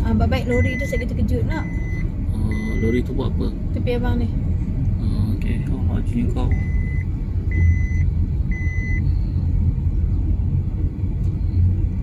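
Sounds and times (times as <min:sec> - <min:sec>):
car road and engine rumble: 0:00.0 - 0:12.0
electronic warning chime beeps: 0:00.5 - 0:03.0, 0:06.5 - 0:09.0.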